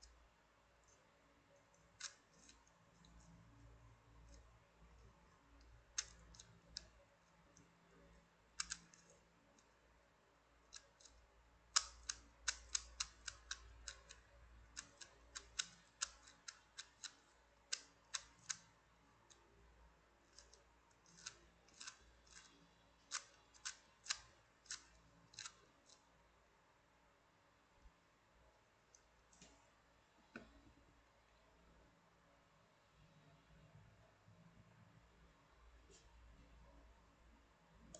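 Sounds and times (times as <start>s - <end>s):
puzzle cube clicking: 8.6s - 9.2s, 11.8s - 18.7s.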